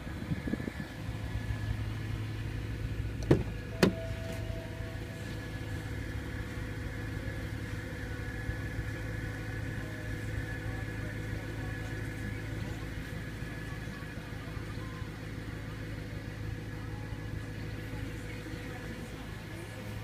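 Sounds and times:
car engine idling: 0.0 - 20.0
car door clicks: 3.2 - 4.4.

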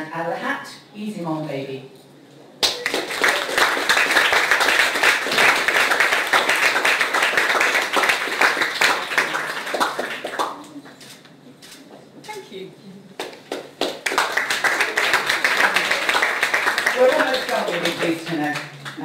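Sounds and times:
audience applauding: 2.6 - 10.9, 13.2 - 19.0.

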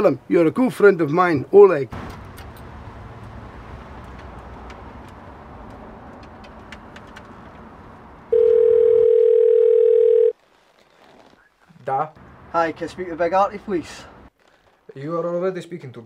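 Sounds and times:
telephone ringback tone: 8.3 - 10.3.

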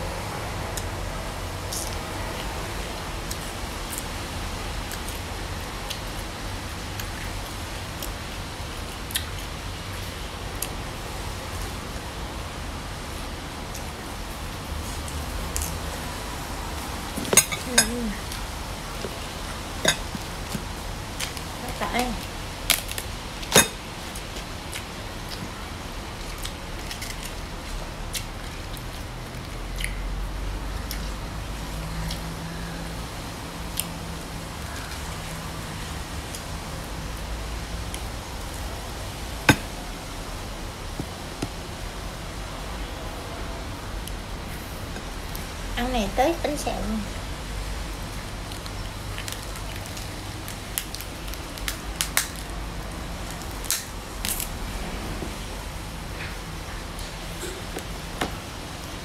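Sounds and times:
crackles of crisp food folded: 1.6 - 45.7, 47.2 - 59.0
sharp crackles of crisp crepe: 48.4 - 54.9.

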